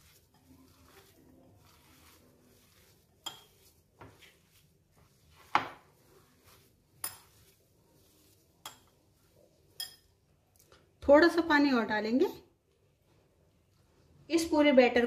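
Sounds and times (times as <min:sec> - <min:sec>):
glass bowl knocking and clinking: 0:03.2 - 0:03.5.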